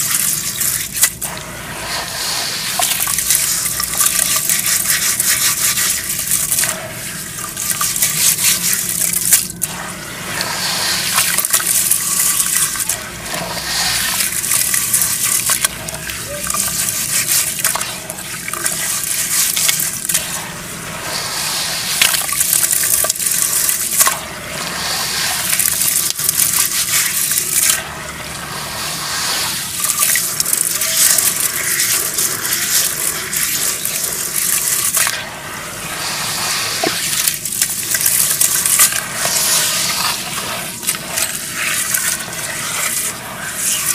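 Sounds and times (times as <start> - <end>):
hands squelching wet mud in water: 0.0 - 1.4, 2.1 - 20.4, 29.4 - 35.3, 36.7 - 43.9.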